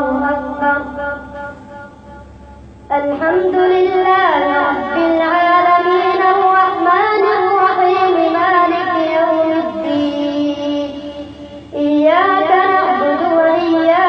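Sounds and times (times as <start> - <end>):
boy chanting melodically: 0.0 - 2.2, 2.9 - 14.0.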